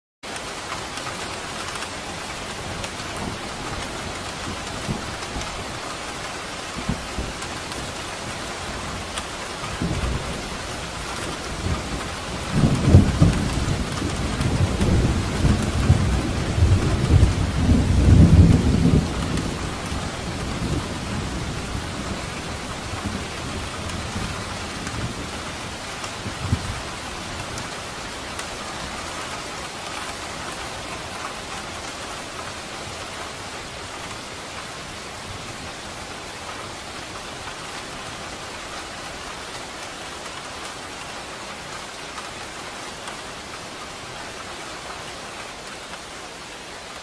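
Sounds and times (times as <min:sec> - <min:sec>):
steady rain falling: 0:00.2 - 0:47.0
thunder rumbling: 0:06.8 - 0:27.7.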